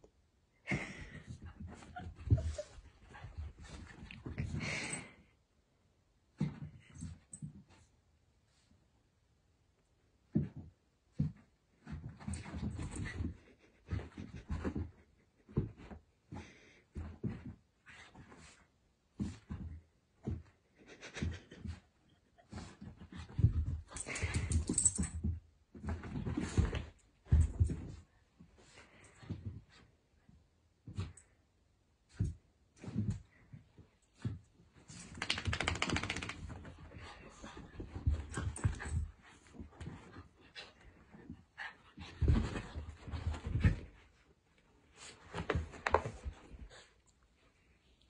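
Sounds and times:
small dogs playing: 0.7 - 5.2, 10.3 - 29.9, 32.1 - 47.9
dogs scuffling: 34.6 - 44.2
dog claws scrabbling on floor: 34.9 - 39.1.

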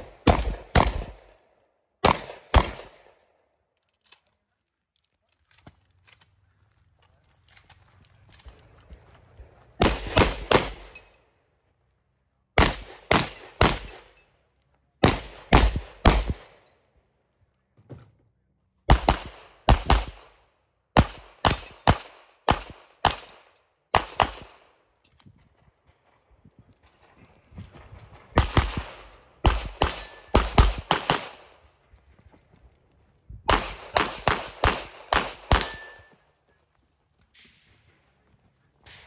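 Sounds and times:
pistol shots: 0.0 - 1.4, 2.0 - 3.2, 9.8 - 11.0, 12.6 - 14.1, 15.0 - 16.6, 18.9 - 20.4, 21.0 - 24.8, 28.3 - 31.6, 33.5 - 36.1.

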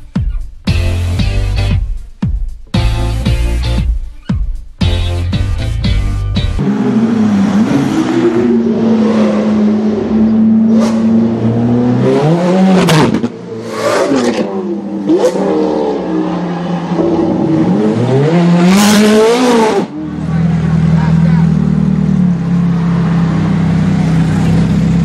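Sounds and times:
car engine revving and accelerating: 6.6 - 25.0.

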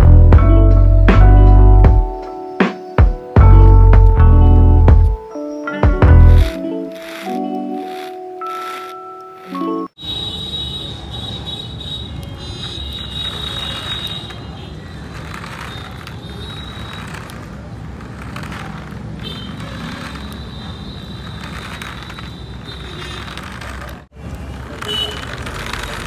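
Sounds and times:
toy car motor whining: 6.2 - 9.8, 12.6 - 24.1, 24.8 - 26.0.

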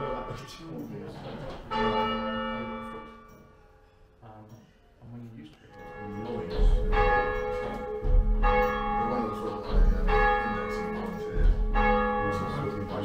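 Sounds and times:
church bell striking: 0.0 - 0.8, 1.7 - 3.4, 5.7 - 13.0.

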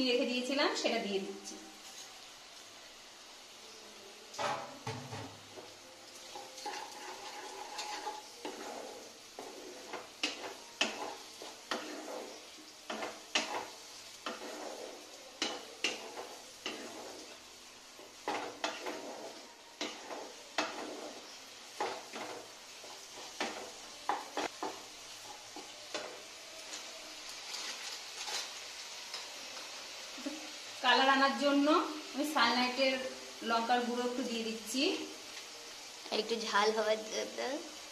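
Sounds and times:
light sizzle of frying: 0.0 - 37.9
wooden spatula scraping pan: 4.4 - 29.2.

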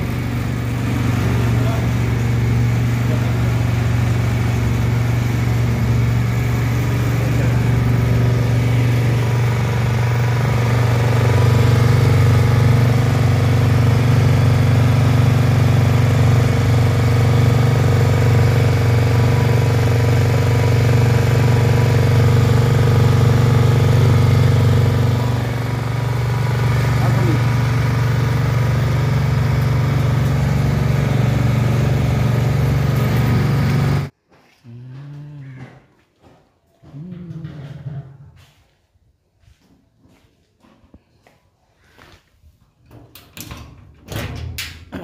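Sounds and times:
petrol engine running: 0.0 - 34.1.

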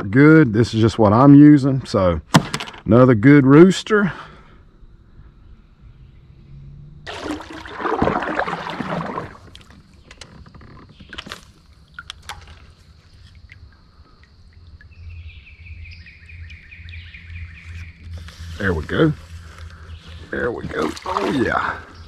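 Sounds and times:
water splashing against kayak: 7.1 - 15.0, 19.6 - 22.0.

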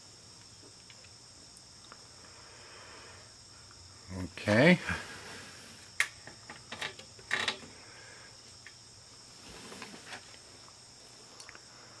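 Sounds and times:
soft rustling: 9.2 - 11.3.

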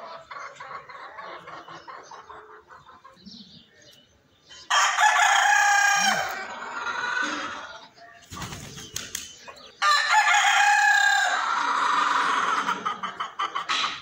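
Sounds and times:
rooster crowing: 4.7 - 6.5, 9.8 - 12.3.

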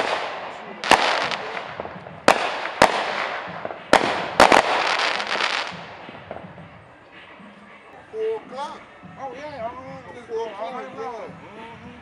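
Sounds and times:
fireworks bangs: 0.0 - 6.8.

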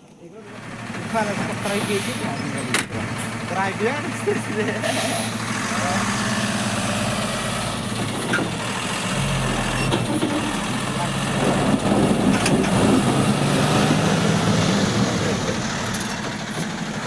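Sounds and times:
truck diesel engine running: 0.1 - 17.0.

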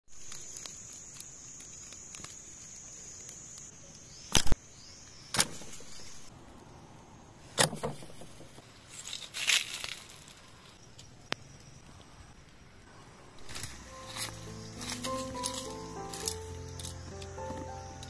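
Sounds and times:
high-pitched insect drone: 13.3 - 18.0
bamboo pieces knocking: 13.4 - 18.0.

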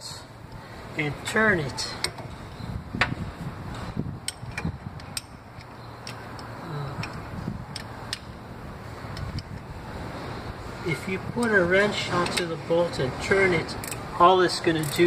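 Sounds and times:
wrench metallic clicks and taps: 4.2 - 8.3, 13.8 - 14.0, 14.8 - 15.0.

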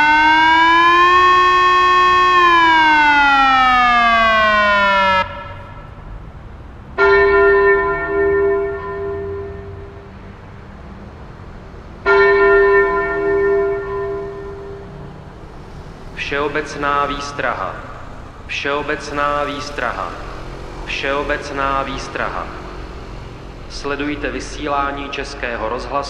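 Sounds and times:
electronic siren wailing: 0.0 - 6.0, 12.2 - 25.2.

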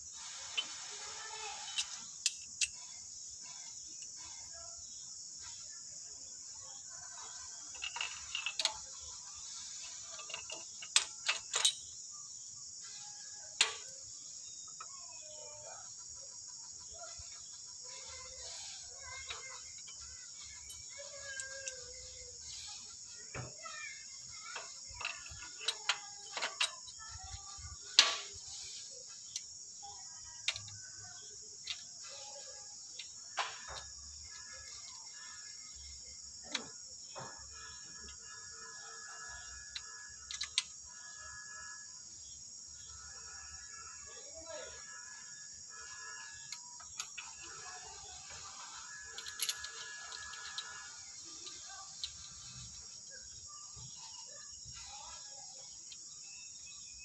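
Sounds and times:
steady high hiss: 0.0 - 16.0, 16.7 - 41.0
metallic tool clicks and clinks: 1.6 - 3.0, 10.1 - 11.9, 48.6 - 52.6.

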